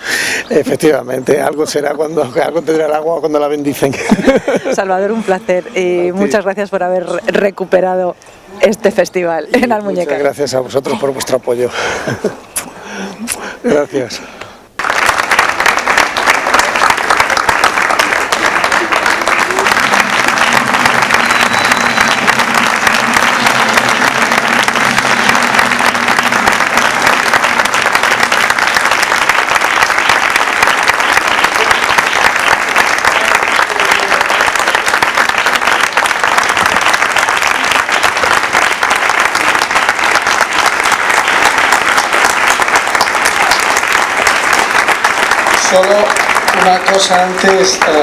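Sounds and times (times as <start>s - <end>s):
audience applauding: 14.7s - 48.0s.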